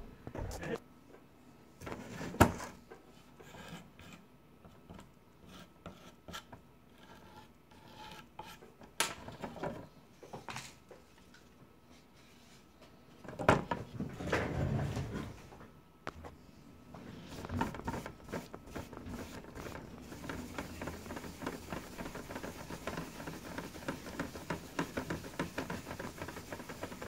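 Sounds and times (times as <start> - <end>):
hand tool scraping grout: 17.2 - 27.0
rubbing and knocks on turntable: 17.3 - 27.0.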